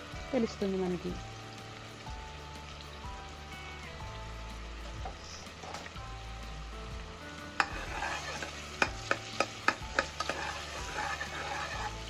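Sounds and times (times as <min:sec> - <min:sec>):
onions sizzling in oil: 0:00.0 - 0:12.0
spoon clinking against pot: 0:07.6 - 0:11.9.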